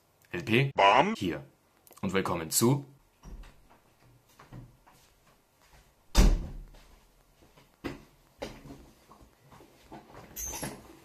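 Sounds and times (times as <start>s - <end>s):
light knocks and bumps: 3.2s - 10.9s
wooden door banging shut: 6.1s - 6.7s.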